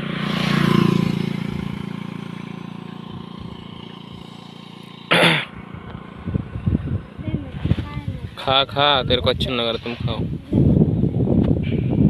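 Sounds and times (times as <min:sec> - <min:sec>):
motorcycle engine idling: 0:00.0 - 0:09.6.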